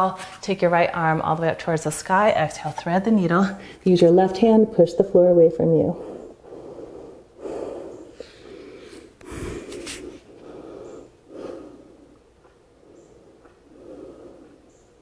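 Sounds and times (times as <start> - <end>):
woman breathing slowly: 5.9 - 15.0.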